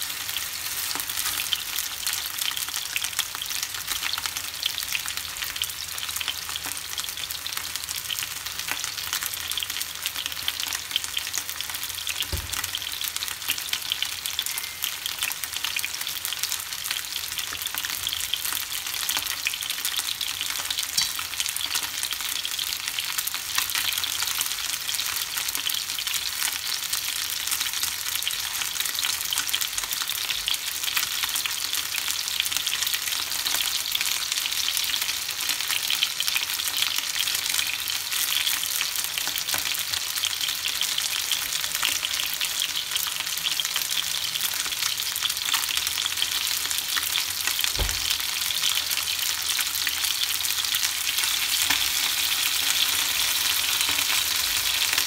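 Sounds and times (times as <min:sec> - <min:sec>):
chicken frying in hot oil: 0:00.0 - 0:55.0
low knock: 0:47.8 - 0:48.2.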